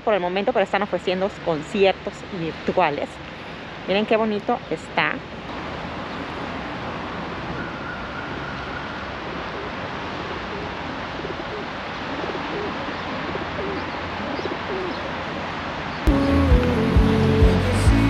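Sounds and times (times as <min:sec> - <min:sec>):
city street noise hiss: 0:00.0 - 0:18.0
pigeons cooing: 0:09.3 - 0:15.2.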